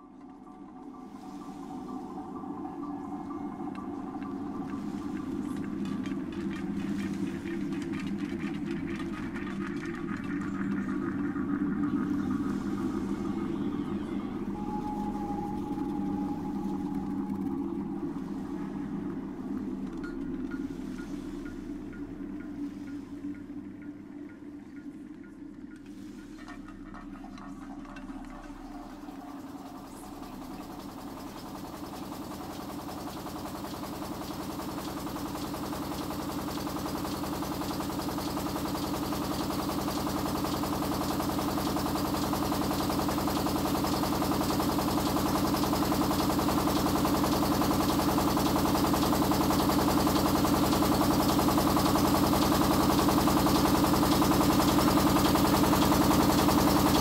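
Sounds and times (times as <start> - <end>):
mill humming and grinding: 0.2 - 57.0.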